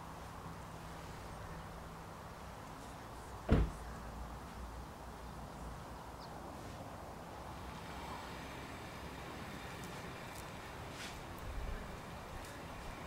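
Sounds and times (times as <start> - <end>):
car door shutting: 3.5 - 3.8.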